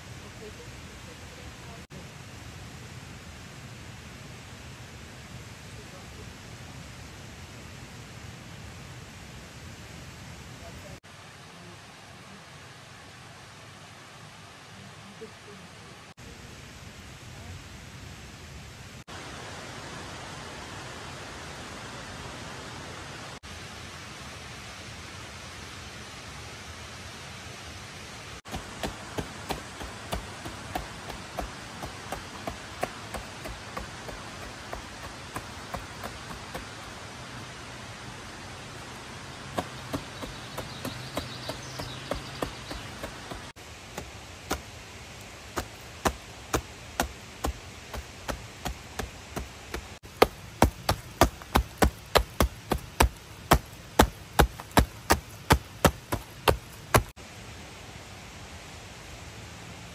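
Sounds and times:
running water: 19.0s - 57.5s
sharp chopping strikes: 28.5s - 36.7s, 45.6s - 57.1s.

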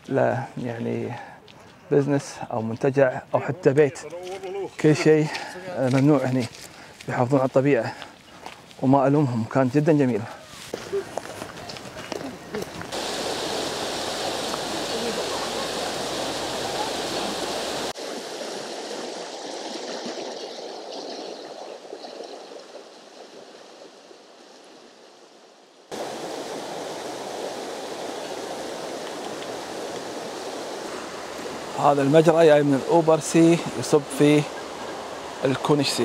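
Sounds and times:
stream rushing over rocks: 10.7s - 24.4s, 25.9s - 36.0s.

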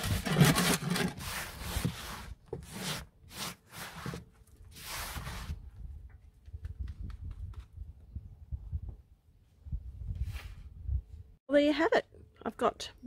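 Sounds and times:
compost scraped in a wheelbarrow: 0.0s - 5.6s.

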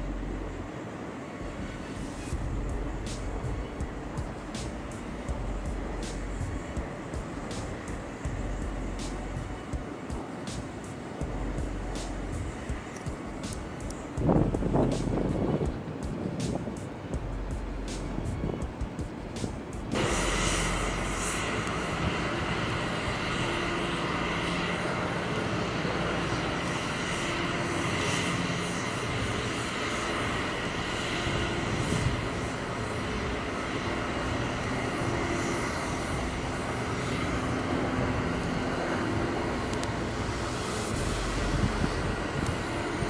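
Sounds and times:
aircraft engines roaring: 0.0s - 43.0s.

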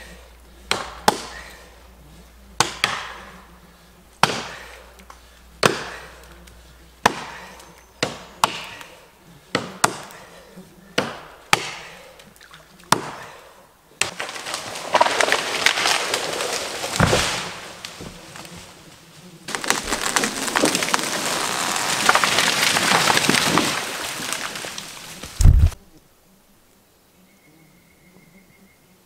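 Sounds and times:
axe chop: 2.6s - 3.2s, 4.2s - 4.6s, 7.0s - 8.9s, 11.0s - 12.0s, 12.9s - 13.3s
heavy thud of tree hitting ground: 14.0s - 18.6s, 19.5s - 25.8s
tree cracking and splintering: 14.0s - 25.8s
tree crashing through branches: 14.0s - 25.8s.

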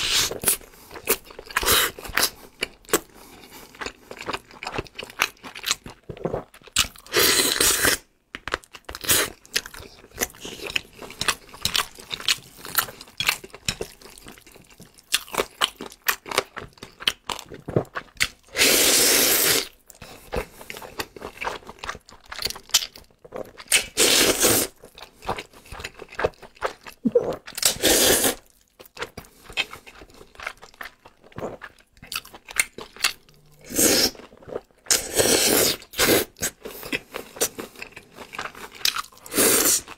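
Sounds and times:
slurping noodles: 18.5s - 19.7s, 23.9s - 24.7s, 27.1s - 28.4s, 33.5s - 34.3s, 34.9s - 36.9s, 39.2s - 39.9s.

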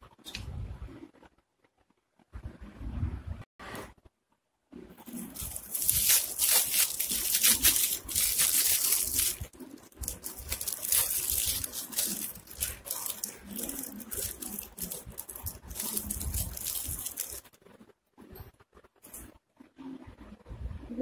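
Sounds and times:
foil and plastic crinkling: 5.0s - 17.5s.

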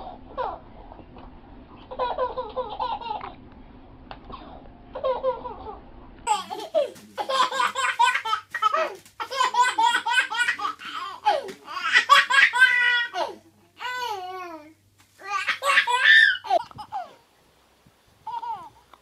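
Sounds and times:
baby laughing: 1.9s - 3.4s, 4.3s - 14.5s, 15.2s - 17.2s, 18.2s - 18.8s
toddler belly-laughing: 4.3s - 13.3s, 15.2s - 17.2s.

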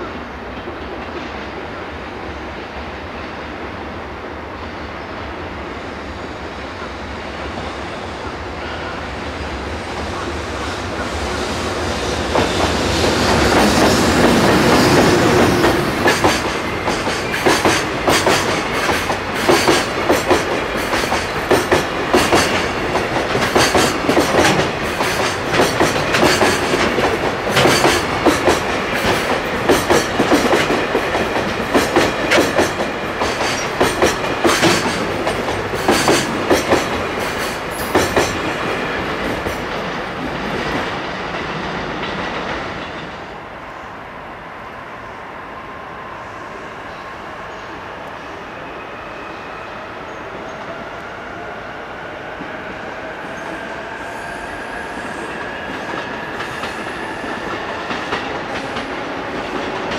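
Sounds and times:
electric freight train passing: 0.0s - 59.9s
wheels clacking over rail joints: 12.3s - 40.9s.

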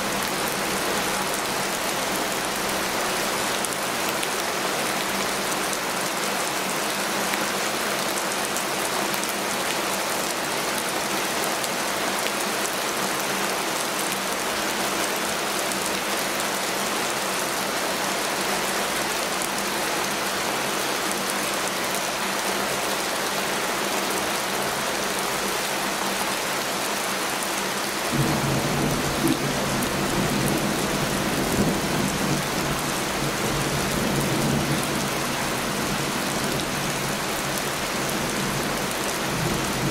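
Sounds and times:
heavy rain: 0.0s - 39.9s
rolling thunder rumble: 28.2s - 34.8s.

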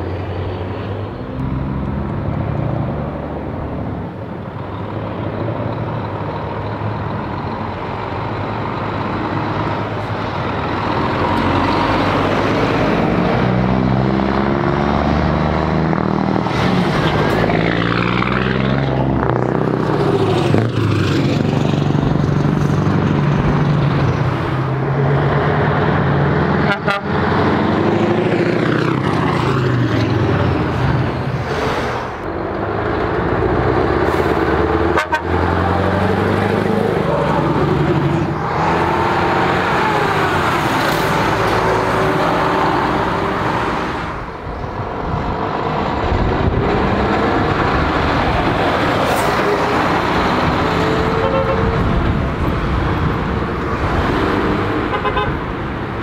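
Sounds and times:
heavy trucks driving past: 0.0s - 56.0s
truck horn toots: 26.6s - 27.3s, 34.9s - 35.6s, 51.0s - 51.9s, 54.9s - 55.4s.

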